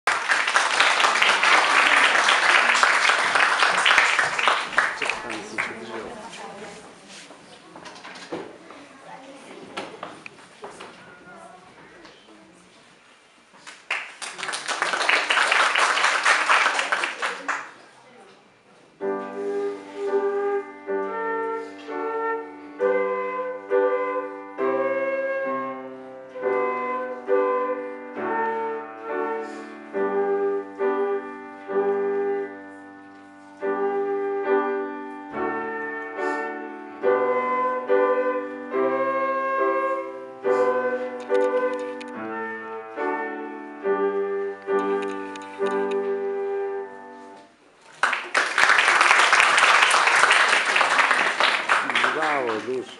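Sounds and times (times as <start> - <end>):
audience applause: 0.0 - 6.1, 13.8 - 17.8, 47.9 - 52.9
flute and piano classical piece: 19.0 - 47.6.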